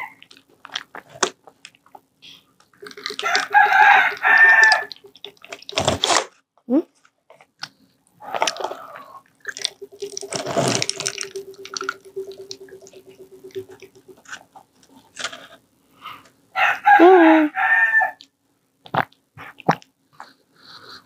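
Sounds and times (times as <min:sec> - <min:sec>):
water pouring into cup: 0:02.8 - 0:05.8
rooster crowing: 0:03.2 - 0:05.0, 0:16.6 - 0:18.2.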